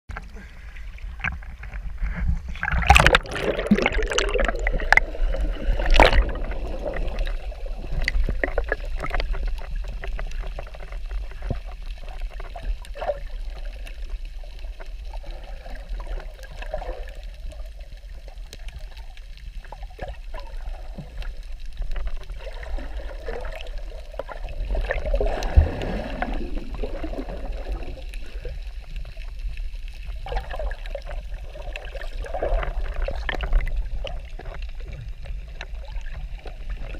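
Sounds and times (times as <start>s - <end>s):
gurgling bubbles: 0.1s - 36.9s
underwater rumble of moving water: 0.1s - 36.9s
underwater clicks: 1.1s - 14.0s, 31.7s - 36.9s.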